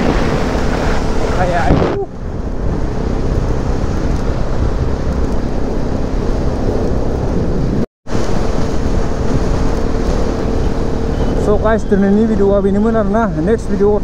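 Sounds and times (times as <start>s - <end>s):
motorcycle engine hum: 0.0s - 14.0s
wind buffeting microphone: 0.0s - 14.0s.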